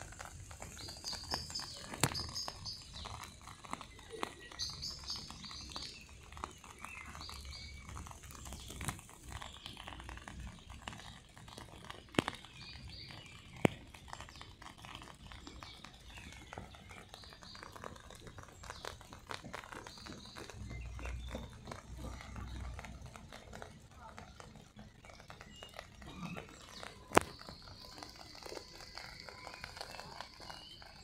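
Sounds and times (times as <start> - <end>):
faint ticks and patter: 0.0 - 31.0
small birds chirping: 0.0 - 31.0
sharp clicks: 17.4 - 30.8.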